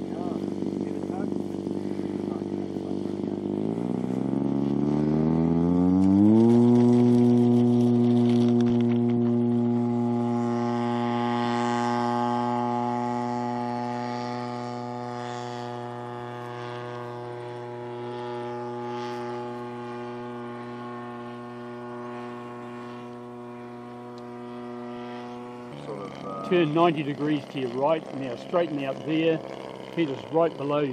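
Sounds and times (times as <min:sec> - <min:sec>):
model plane motor droning: 0:00.0 - 0:30.9.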